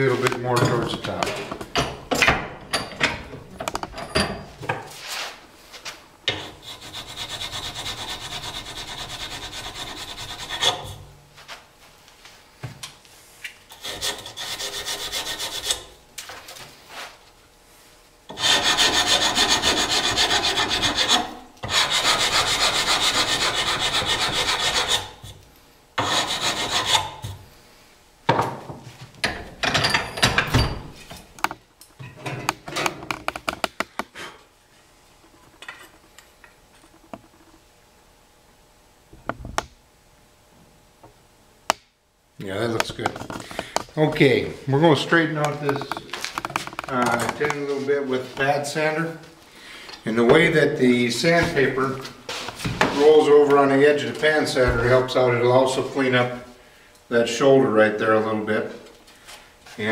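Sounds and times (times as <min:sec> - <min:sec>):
rasp scraping wood: 0:06.3 - 0:11.0, 0:13.7 - 0:15.9, 0:18.3 - 0:25.4, 0:26.0 - 0:27.2.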